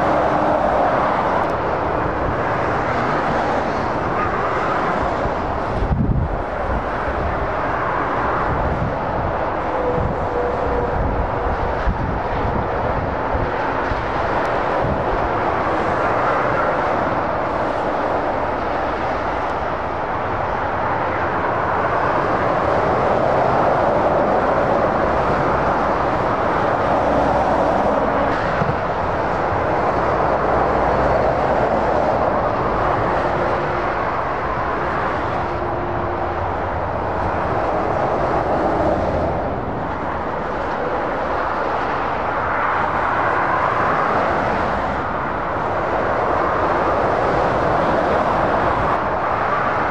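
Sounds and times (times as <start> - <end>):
diesel engine drone: 0.0 - 49.9
vehicles passing at speed: 0.0 - 49.9.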